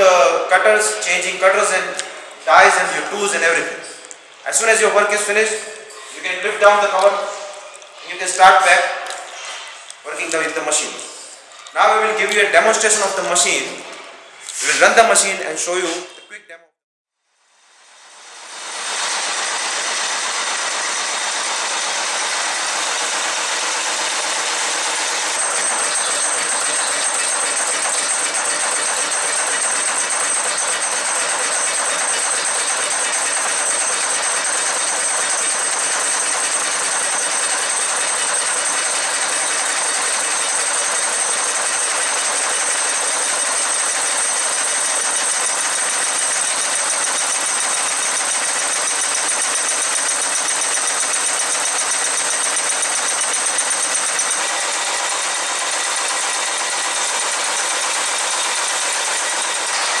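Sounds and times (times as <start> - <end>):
nail making machine clattering: 19.5 - 60.0
high ringing tones: 25.4 - 57.1.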